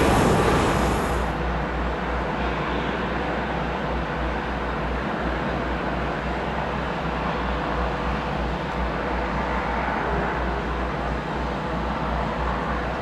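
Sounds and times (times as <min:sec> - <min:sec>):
low pulsing rumble: 0:00.0 - 0:01.7
jet aircraft hum and whine: 0:00.0 - 0:13.0.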